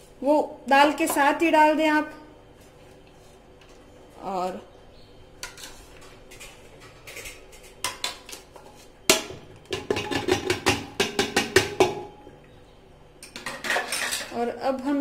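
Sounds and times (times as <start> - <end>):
spoon knocking pot: 9.1 - 12.2.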